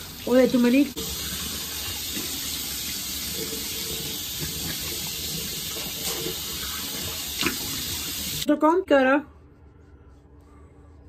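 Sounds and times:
tap water running into sink: 0:00.0 - 0:08.5.

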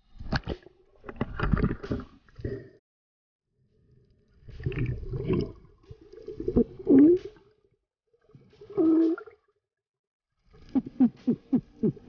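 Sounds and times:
underwater gurgling and bubbling: 0:04.4 - 0:07.4.

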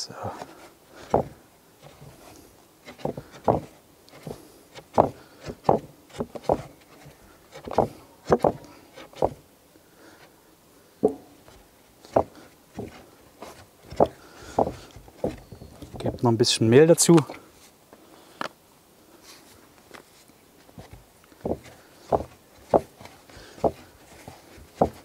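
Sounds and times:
dough thumping and slapping on wood: 0:01.0 - 0:01.4, 0:03.0 - 0:06.7, 0:07.6 - 0:08.6, 0:12.1 - 0:13.0, 0:13.9 - 0:16.1, 0:20.8 - 0:23.9, 0:24.6 - 0:25.0.

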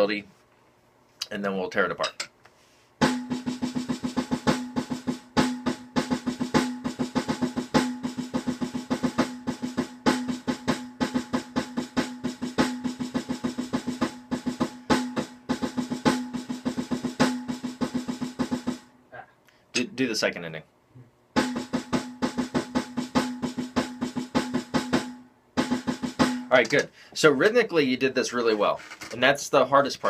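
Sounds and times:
electronic snare drum rolls: 0:03.0 - 0:18.9, 0:21.4 - 0:26.7.

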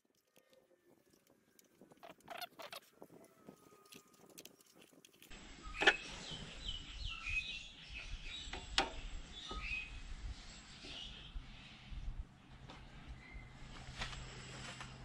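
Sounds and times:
bird chirping: 0:05.5 - 0:11.4, 0:13.2 - 0:13.6.

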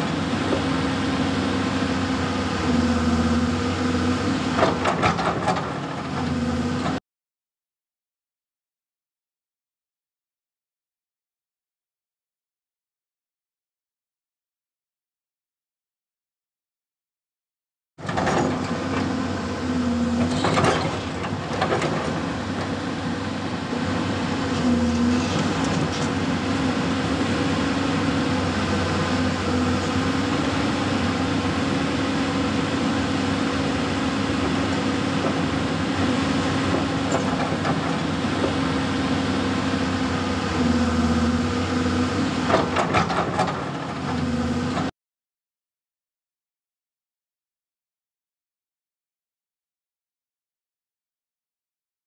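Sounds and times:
excavator diesel engine running: 0:00.0 - 0:07.0, 0:18.0 - 0:44.9.

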